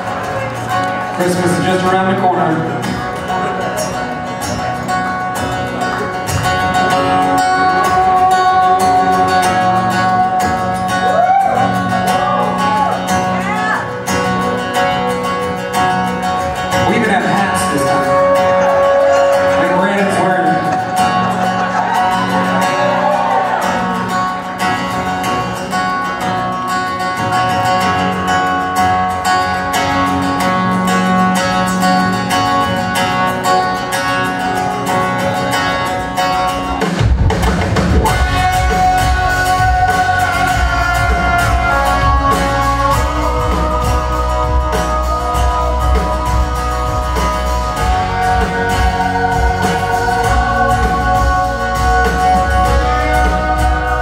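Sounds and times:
acoustic guitars: 0.0 - 54.0
keyboard: 0.0 - 54.0
live folk-rock band: 0.0 - 54.0
bass and drum kit: 2.8 - 25.7, 34.3 - 54.0.

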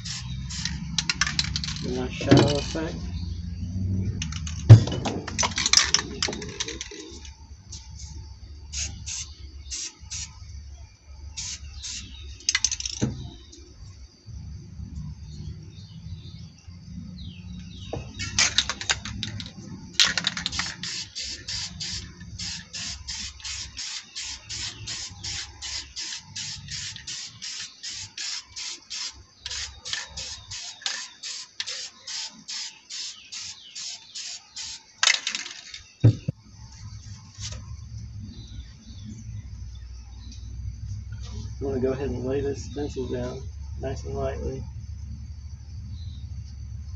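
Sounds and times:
aerosol spray can hissing: 0.0 - 0.8, 8.0 - 10.4, 11.4 - 12.2, 20.5 - 34.9.

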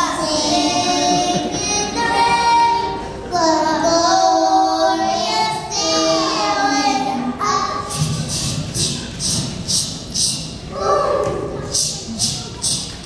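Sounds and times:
girl singing into a microphone: 0.0 - 8.6.

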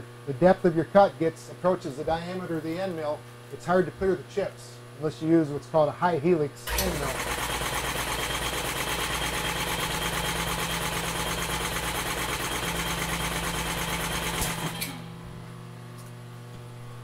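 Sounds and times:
machine motor pulsing: 6.7 - 15.4.

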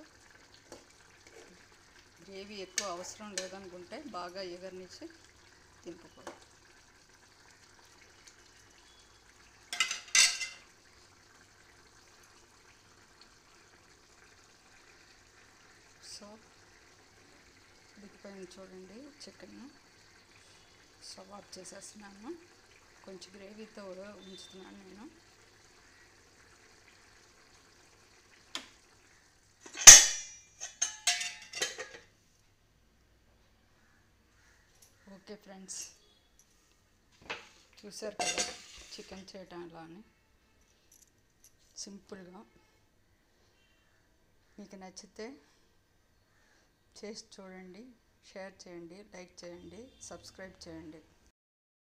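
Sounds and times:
curry simmering hiss: 0.0 - 29.4
spoon clattering against metal pan: 9.7 - 10.7, 29.7 - 32.1, 38.2 - 38.9.

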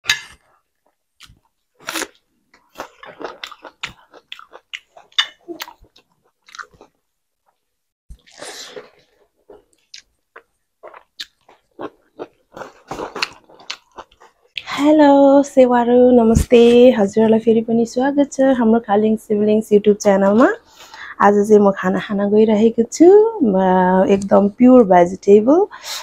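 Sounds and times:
person chewing food: 0.2 - 14.7.

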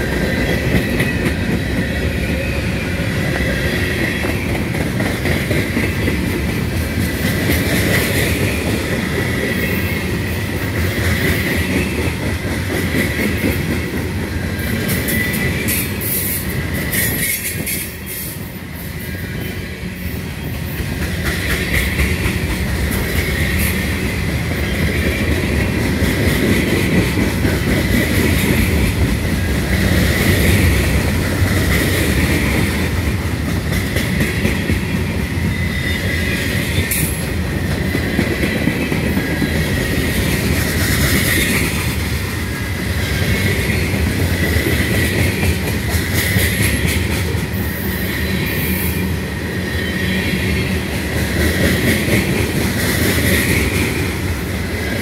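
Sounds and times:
freight train rumbling past: 0.0 - 55.0.

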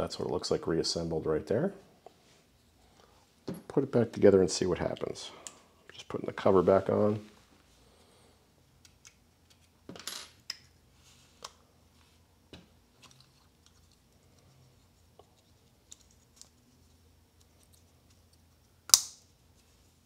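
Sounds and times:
sharp plastic snap: 18.9 - 19.2.

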